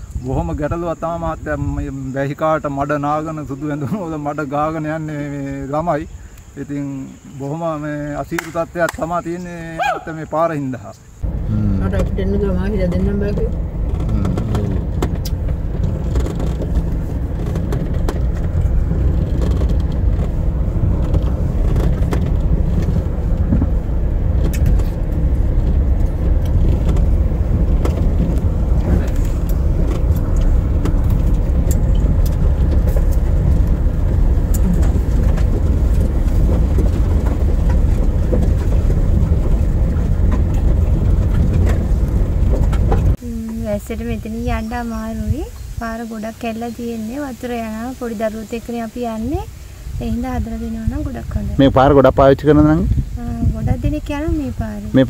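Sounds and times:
vehicle rumbling on dirt road: 0.0s - 55.0s
knocks and rattles from bumps: 11.3s - 43.2s.

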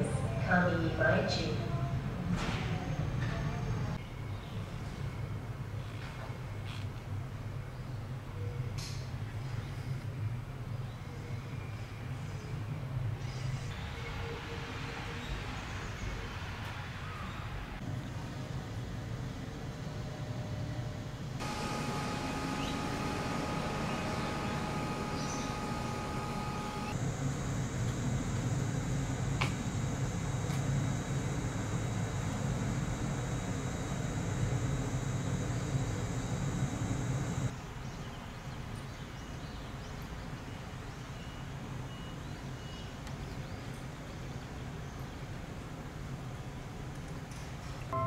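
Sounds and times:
electric train rumble: 18.4s - 37.5s
high-pitched hums: 21.4s - 37.5s
faint high chirps: 21.5s - 27.0s.

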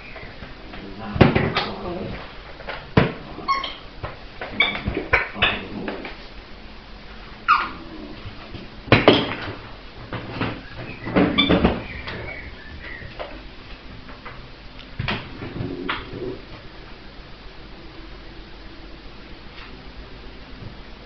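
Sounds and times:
puppy squealing: 7.5s - 7.8s.

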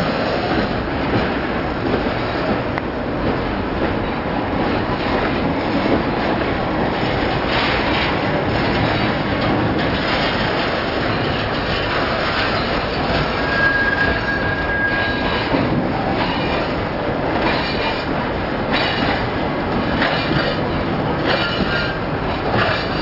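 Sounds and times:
freight cars rumbling and rattling: 0.0s - 23.0s
wheels clacking over rail joints: 0.0s - 23.0s
thin wheel squeal: 13.3s - 15.5s.

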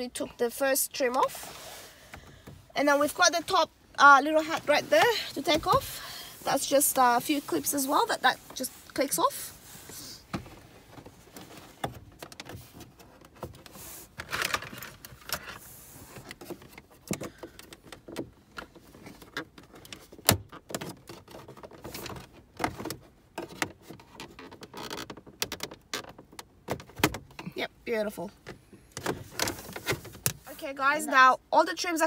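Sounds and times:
plastic trim clicks and creaks: 16.2s - 27.5s, 28.4s - 30.4s.

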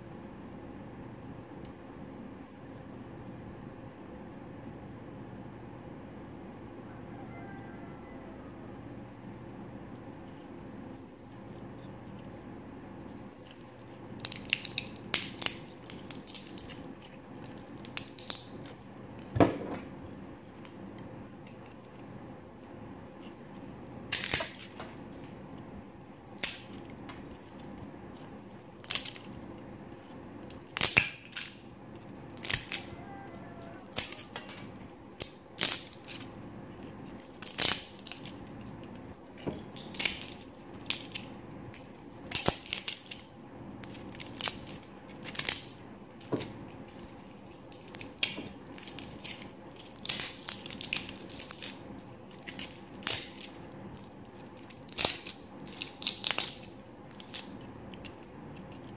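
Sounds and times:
pliers cracking brittle plastic: 13.4s - 18.8s, 24.1s - 25.0s, 26.4s - 58.9s.

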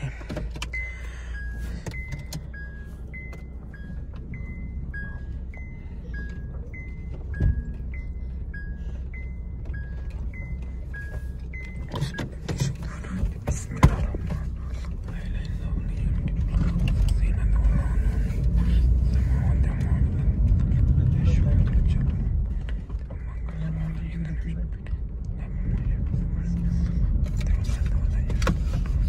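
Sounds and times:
car engine idling: 0.0s - 29.0s
two-tone reverse warning beeper: 0.6s - 13.2s.

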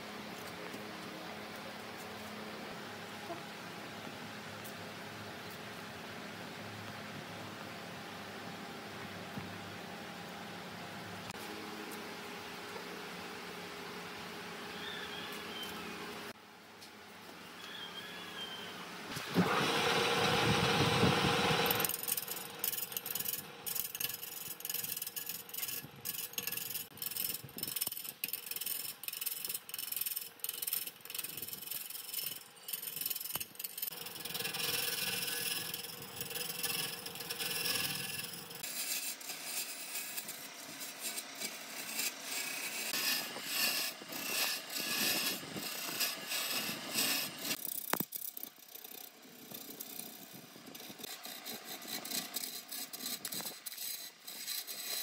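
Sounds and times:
tool scraping wood: 19.1s - 55.0s.

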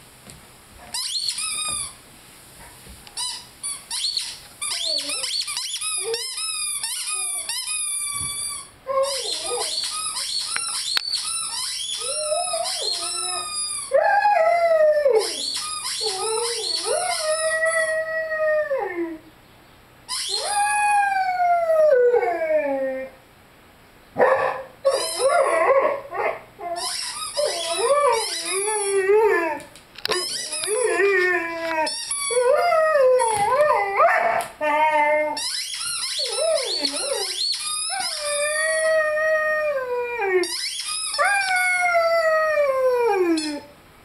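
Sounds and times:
squeaky toy squeaking: 0.9s - 2.0s, 3.2s - 13.9s, 15.2s - 17.5s, 20.1s - 20.6s, 24.9s - 25.6s, 26.6s - 29.0s, 30.1s - 31.2s, 31.8s - 32.5s, 35.4s - 38.6s, 40.4s - 41.6s, 43.3s - 43.7s
puppy howling: 8.9s - 9.9s, 12.0s - 19.2s, 20.3s - 23.2s, 24.8s - 35.4s, 36.2s - 40.6s, 41.2s - 43.7s.

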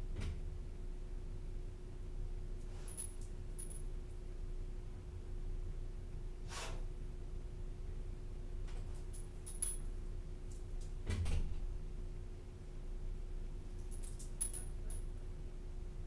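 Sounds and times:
steady electrical hum: 0.0s - 16.0s
dog collar tags jingling: 2.7s - 3.9s, 9.0s - 10.0s, 13.7s - 15.2s.

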